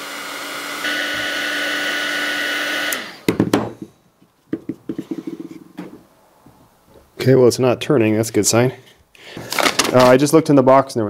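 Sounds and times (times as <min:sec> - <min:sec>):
heat gun blowing with fan whine: 0:00.0 - 0:03.5
sharp knocks: 0:03.3 - 0:03.9.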